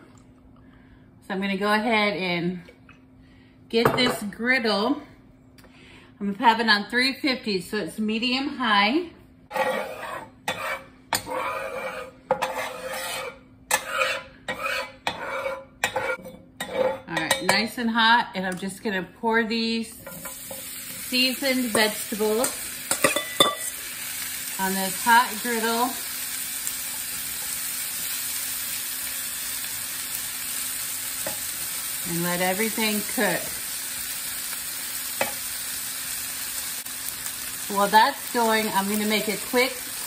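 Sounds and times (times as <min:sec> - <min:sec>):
utensil scraping a bowl: 0:09.5 - 0:17.1
vegetables sizzling on a griddle: 0:20.0 - 0:40.0.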